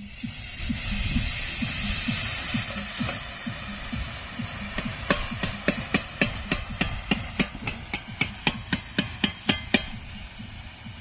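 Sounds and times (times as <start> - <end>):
metallic tapping on a ladle: 4.8 - 10.2.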